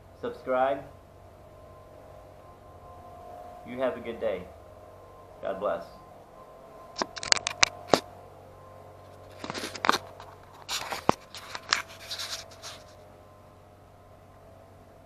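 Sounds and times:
scraping and rubbing: 7.0s - 8.1s, 9.0s - 13.0s.

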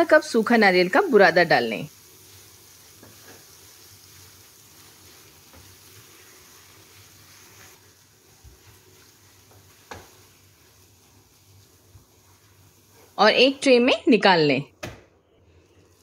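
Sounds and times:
spatula scraping and tapping pan: 2.9s - 3.7s, 4.8s - 7.9s, 8.5s - 10.4s.

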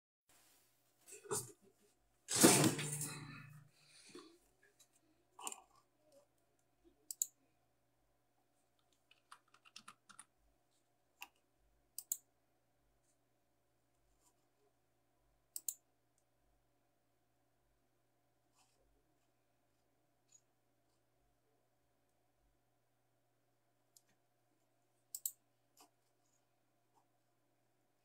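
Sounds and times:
paper rustling: 2.3s - 3.4s.

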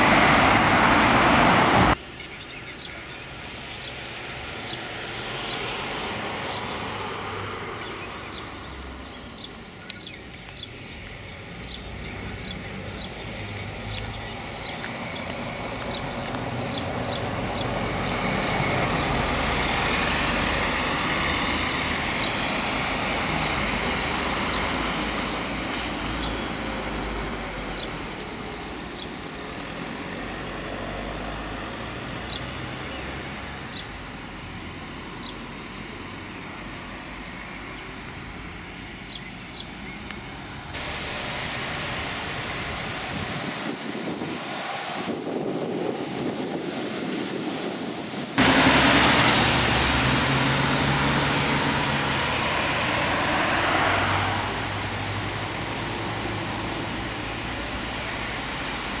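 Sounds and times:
bus driving past: 0.0s - 59.0s
street traffic: 0.0s - 59.0s
steady rushing noise: 40.7s - 59.0s.

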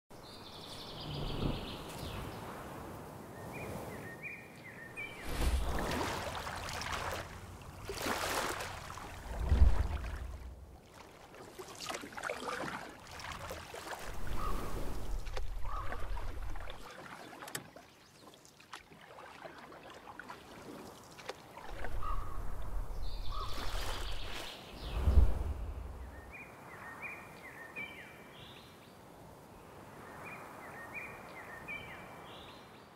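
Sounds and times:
wind rumbling on microphone: 0.6s - 4.0s, 9.1s - 10.8s, 21.8s - 26.4s
paddles dipping in water: 5.0s - 24.7s
water splashing: 5.1s - 22.1s, 23.3s - 26.2s.

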